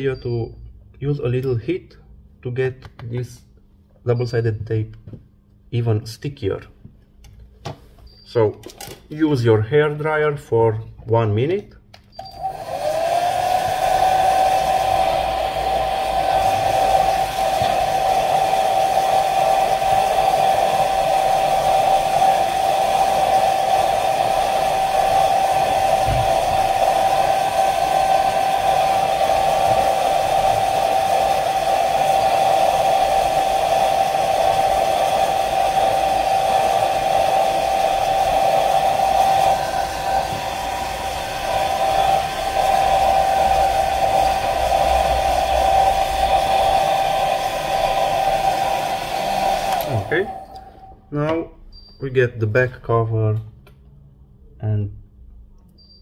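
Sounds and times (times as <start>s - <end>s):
hair dryer running: 12.2s - 51.1s.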